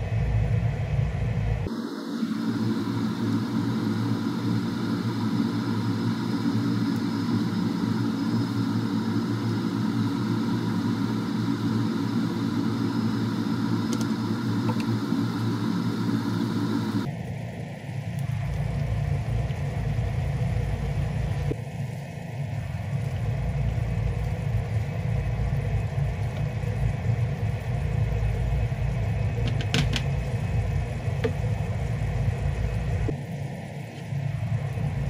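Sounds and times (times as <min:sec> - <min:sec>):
gas stove humming: 0:00.0 - 0:35.0
tomatoes simmering in a pan: 0:17.2 - 0:35.0.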